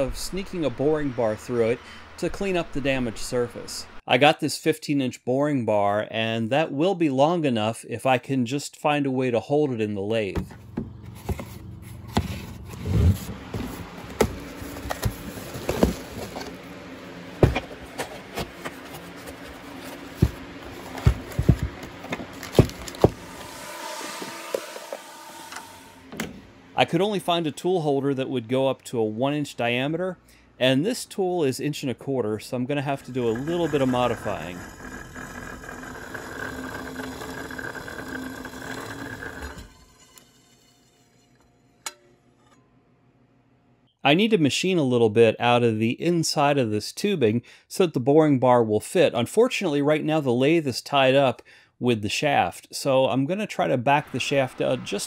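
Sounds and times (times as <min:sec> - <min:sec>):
electric motor whining: 0:19.5 - 0:26.8, 0:33.0 - 0:39.9.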